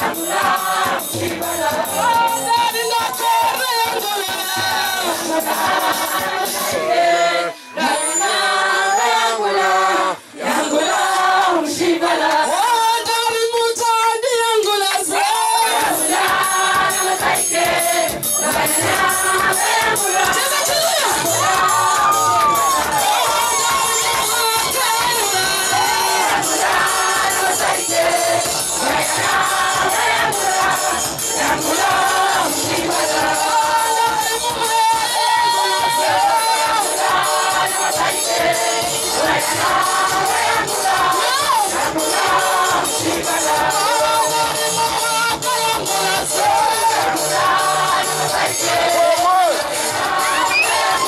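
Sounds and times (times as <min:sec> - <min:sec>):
women's choir singing: 0:00.0 - 0:02.5, 0:04.4 - 0:12.8, 0:15.1 - 0:51.0
rhythmic clapping: 0:00.0 - 0:06.7, 0:10.5 - 0:12.6, 0:14.6 - 0:51.0
shaken percussion: 0:00.0 - 0:06.8, 0:15.2 - 0:51.0
woman singing into a microphone: 0:06.6 - 0:09.8, 0:23.2 - 0:26.3, 0:40.5 - 0:41.8.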